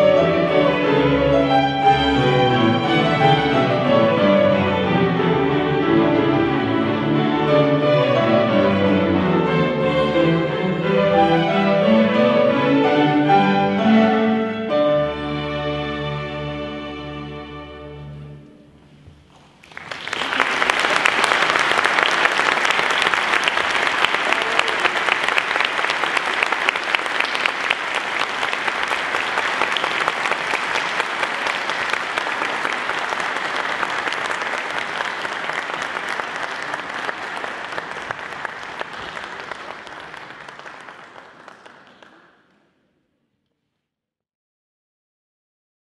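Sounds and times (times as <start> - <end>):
audience applauding: 19.3 - 42.7.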